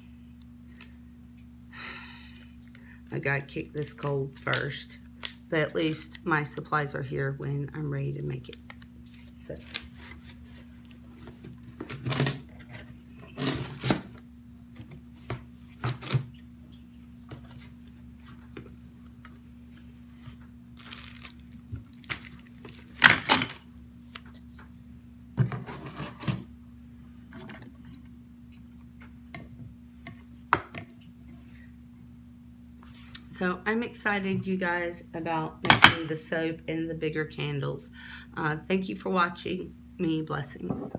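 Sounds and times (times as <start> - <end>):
steady low hum: 0.0 - 40.9
packaging rustling: 19.8 - 23.6.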